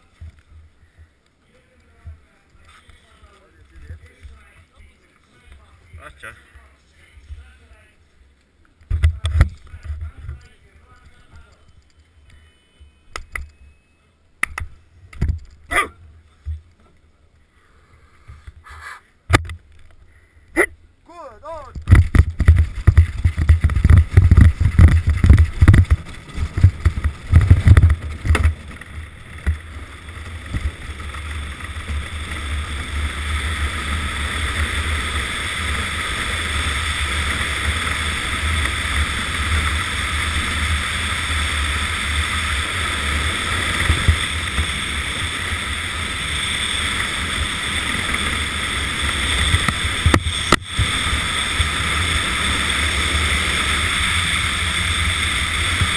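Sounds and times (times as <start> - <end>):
sled runners rumbling on ice: 21.8 - 55.9.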